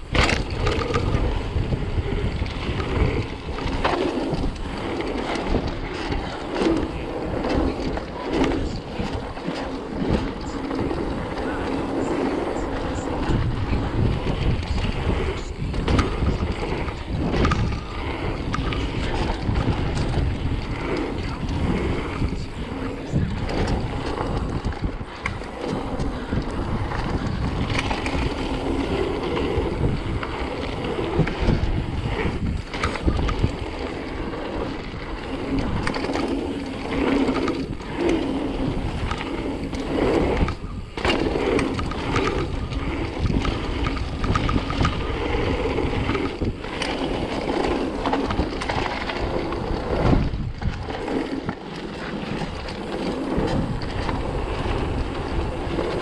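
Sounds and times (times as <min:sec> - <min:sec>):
bicycle tyre rumble: 0:00.0 - 0:56.0
wind noise on microphone: 0:00.0 - 0:56.0.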